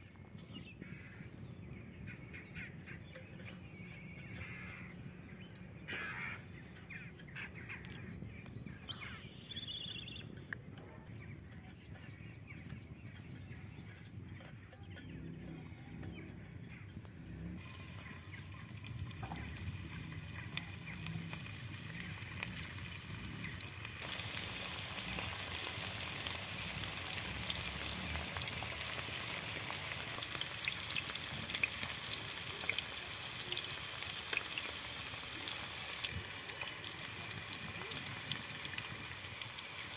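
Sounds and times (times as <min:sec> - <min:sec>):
chicken sizzling in hot oil: 0:05.7 - 0:07.8, 0:17.6 - 0:39.9
bird calling: 0:08.8 - 0:10.3.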